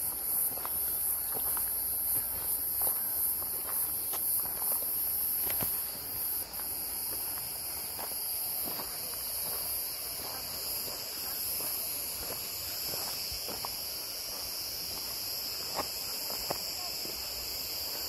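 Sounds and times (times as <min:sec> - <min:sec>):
soft footsteps: 0:00.0 - 0:17.2
insects shrilling: 0:00.0 - 0:18.0.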